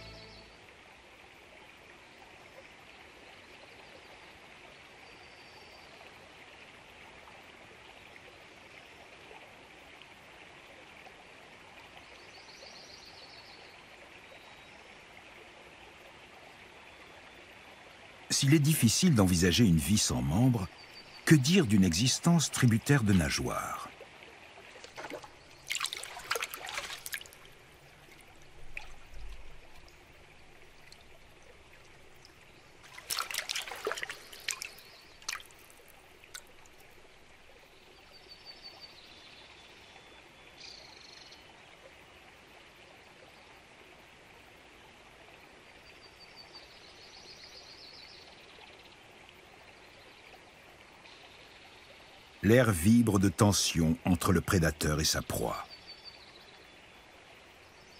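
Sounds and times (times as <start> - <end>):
faint steady hiss: 0.0 - 57.9
river water trickling and splashing: 0.0 - 57.9.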